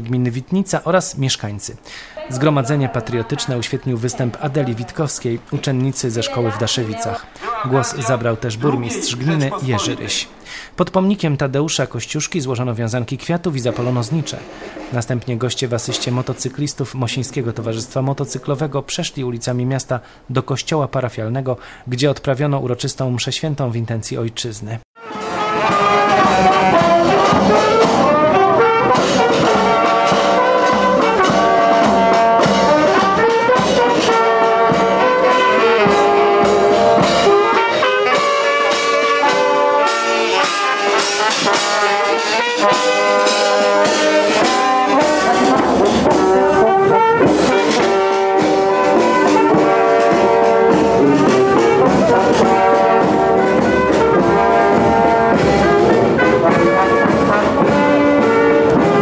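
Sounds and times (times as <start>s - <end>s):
marching brass band playing: 2.2s - 10.4s, 25.0s - 59.0s
bass drum and snare beat: 25.4s - 59.0s.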